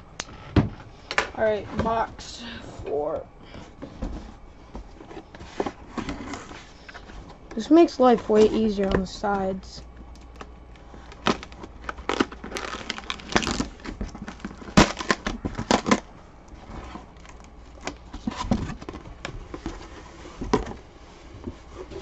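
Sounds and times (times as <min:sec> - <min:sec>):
packing tape being slit: 0:10.1 - 0:16.1
cardboard flaps tearing open: 0:11.2 - 0:16.1.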